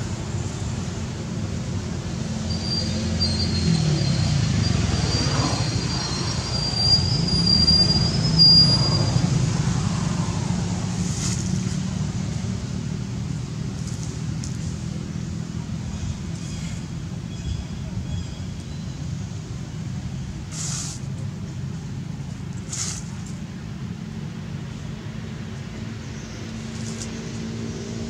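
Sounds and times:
motor vehicle engine hum: 0.0s - 28.0s
high thin squeal: 2.5s - 9.3s.

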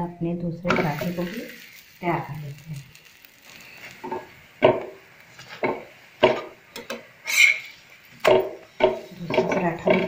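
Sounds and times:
metal spatula knocking on griddle: 4.6s - 5.0s, 5.6s - 7.0s, 8.2s - 10.0s.

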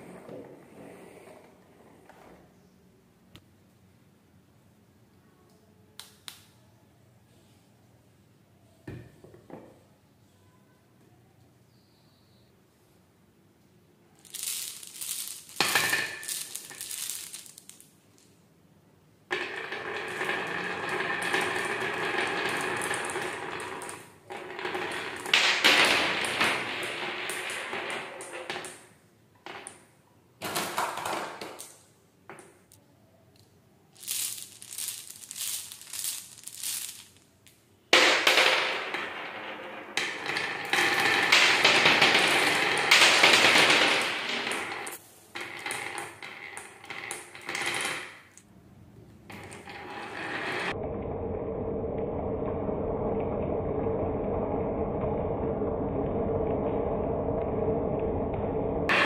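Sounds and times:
marbles clattering on wooden track: 14.2s - 17.9s, 19.3s - 32.6s, 34.0s - 37.3s, 37.9s - 48.5s, 49.3s - 50.8s.

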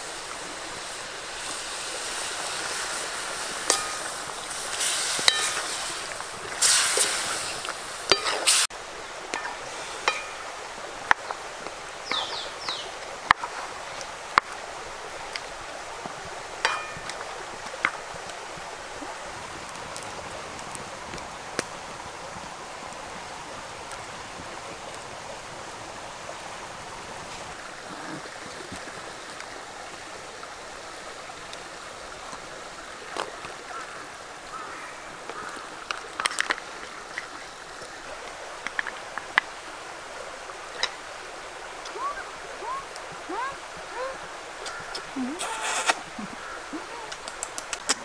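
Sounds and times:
chicken sizzling in a wok: 0.0s - 8.7s
burning firewood cracking: 19.5s - 21.8s.

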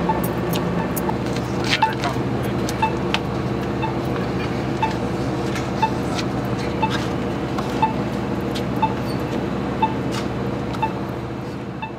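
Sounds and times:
steady low hum: 0.0s - 11.9s
short sharp beeps: 8.8s - 9.2s, 9.8s - 10.0s, 10.8s - 11.0s.

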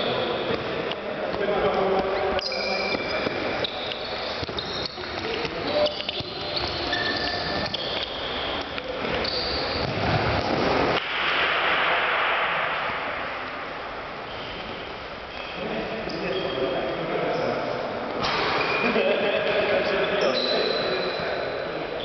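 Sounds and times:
sports shoes squeaking: 0.0s - 10.8s, 14.3s - 19.0s, 19.8s - 22.0s
hissing rush of noise: 10.6s - 14.8s.

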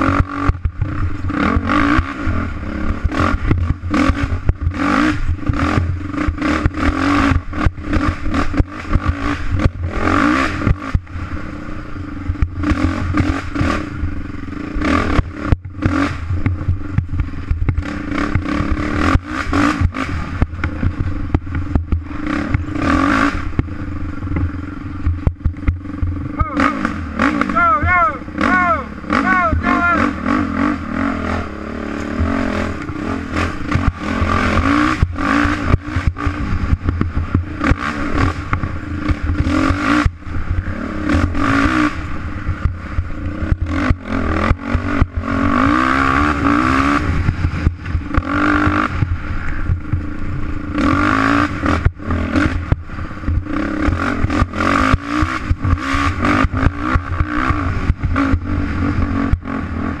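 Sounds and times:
racing engine revving: 0.0s - 60.0s.

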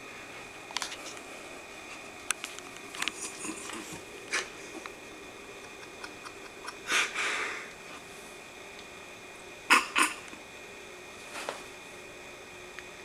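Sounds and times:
person sniffing: 6.8s - 7.7s.

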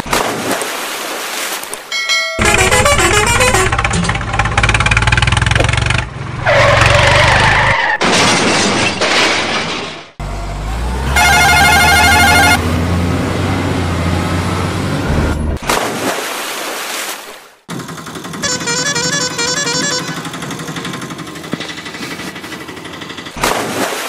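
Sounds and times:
electronic horn jingle: 2.0s - 4.0s, 11.2s - 12.6s, 18.4s - 20.3s
truck engine running: 2.4s - 7.3s, 17.7s - 23.4s.

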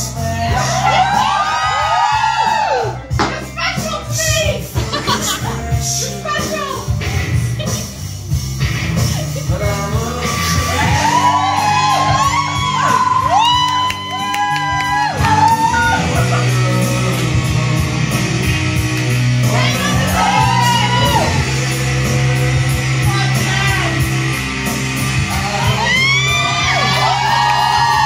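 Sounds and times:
steady drum beat: 0.0s - 28.0s
sustained bass line: 0.0s - 28.0s
person singing: 4.6s - 8.0s, 9.1s - 13.3s, 25.2s - 28.0s.

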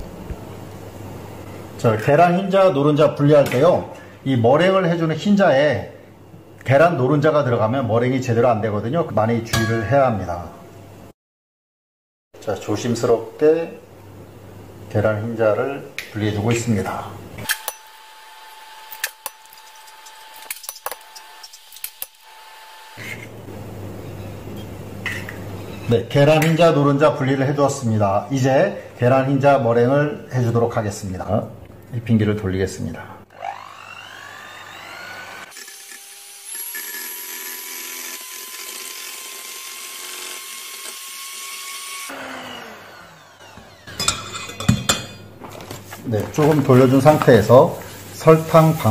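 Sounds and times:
electric hand mixer whining: 17.6s - 23.4s, 33.3s - 44.1s.

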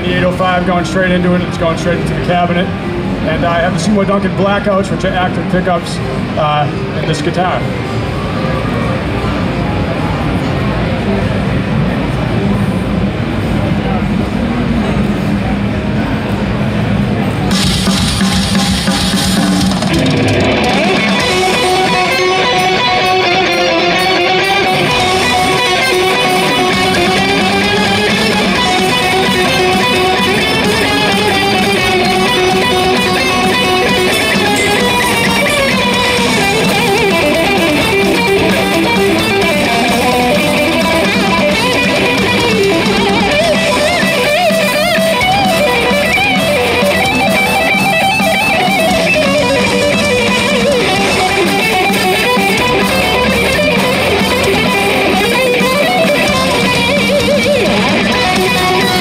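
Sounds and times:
distorted electric guitar lead: 0.0s - 59.0s.

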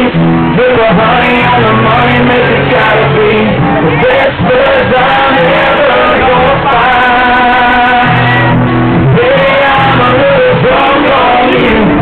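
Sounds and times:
acoustic guitar: 0.0s - 12.0s
country band playing: 0.0s - 12.0s
person singing: 0.0s - 12.0s.

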